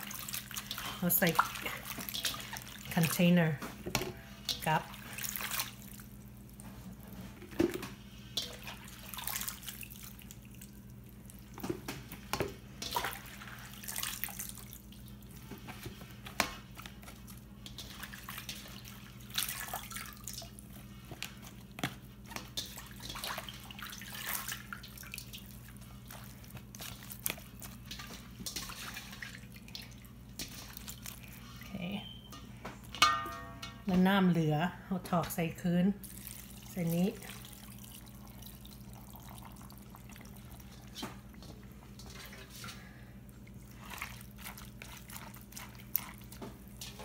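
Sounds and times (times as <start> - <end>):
liquid dripping and splashing: 0.0 - 3.6, 4.4 - 31.6, 36.0 - 47.0
steady low hum: 25.6 - 47.0.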